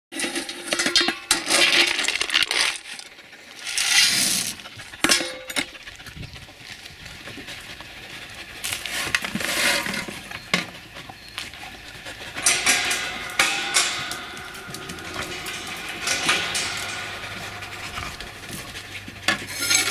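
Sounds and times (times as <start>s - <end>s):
metal bowl clinking and scraping: 0.2s - 5.7s, 12.0s - 19.9s.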